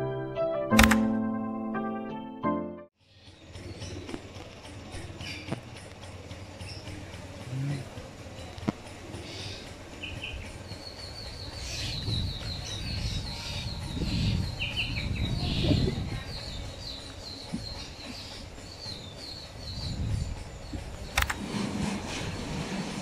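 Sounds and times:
small birds chirping: 3.0s - 21.4s.

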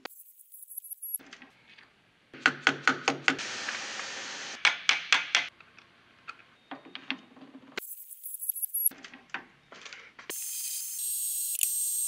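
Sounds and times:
steady hiss: 3.4s - 4.6s.

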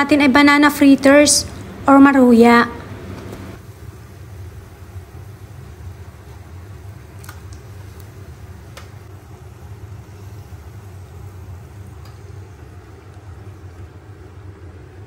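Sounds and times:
low hum: 0.0s - 6.9s.

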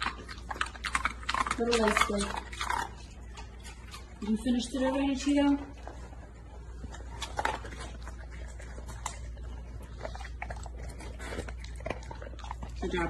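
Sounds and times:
dogs crunching ice: 0.0s - 5.5s, 6.8s - 13.0s
dogs licking: 0.0s - 13.0s.

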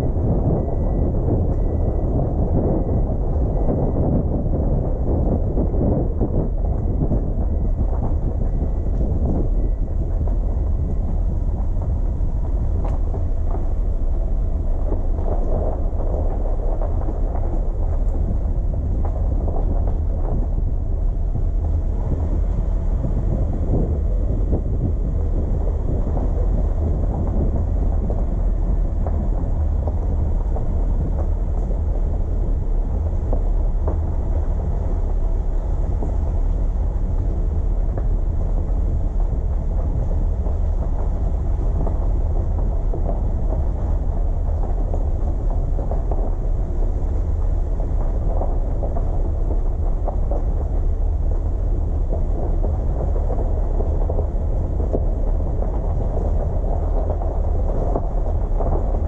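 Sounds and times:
car driving rumble: 0.0s - 59.0s
wind buffeting microphone: 0.0s - 59.0s.

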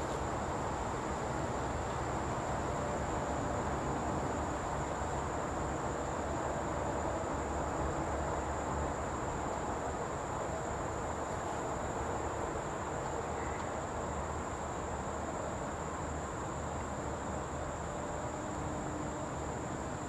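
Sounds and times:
insect chorus high-pitched: 10.5s - 15.1s.

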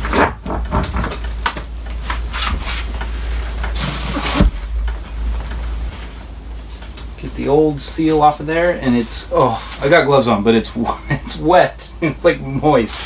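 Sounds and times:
plastic toilet clunking and scraping: 0.0s - 1.6s, 3.6s - 5.0s.

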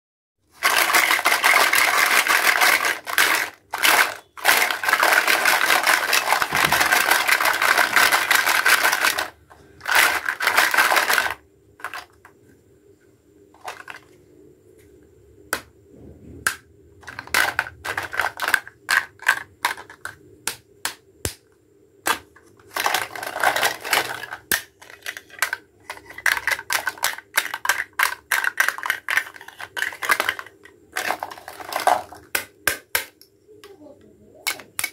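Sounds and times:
plastic toy pieces rattling in basket: 0.5s - 12.2s, 13.6s - 14.1s, 17.0s - 20.1s, 22.6s - 32.3s
plastic pieces clicking and knocking: 0.6s - 12.3s, 13.6s - 14.1s, 16.5s - 21.0s, 22.0s - 33.3s, 34.4s - 34.9s.

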